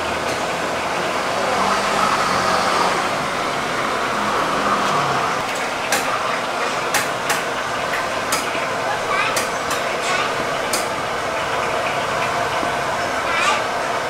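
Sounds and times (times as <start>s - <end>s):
street traffic noise: 0.0s - 14.0s
motor vehicle passing: 0.7s - 5.6s.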